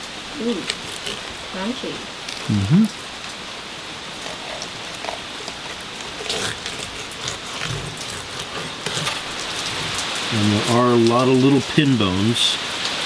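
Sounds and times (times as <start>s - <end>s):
knife cutting through fish bones: 5.0s - 10.0s
steady hiss: 8.5s - 13.0s.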